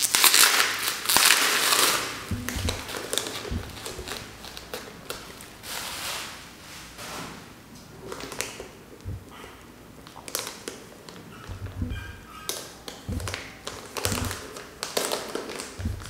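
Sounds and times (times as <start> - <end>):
bubble wrap crinkling: 0.0 - 2.1.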